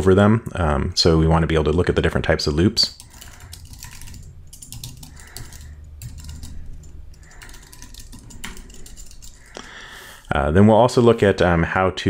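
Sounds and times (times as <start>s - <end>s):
typing on computer keyboard: 2.9s - 9.6s.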